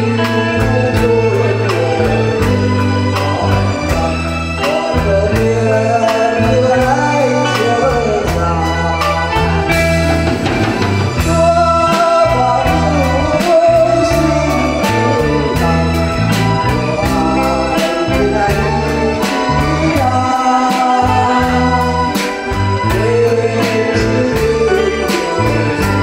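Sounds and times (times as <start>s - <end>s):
man singing into microphone: 0.0s - 10.3s, 11.1s - 26.0s
steady drum beat: 0.0s - 26.0s
sustained bass notes: 0.0s - 26.0s.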